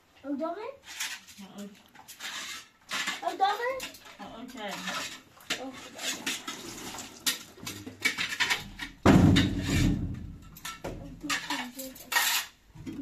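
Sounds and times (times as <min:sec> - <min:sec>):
metal door banging: 0:09.0 - 0:11.0.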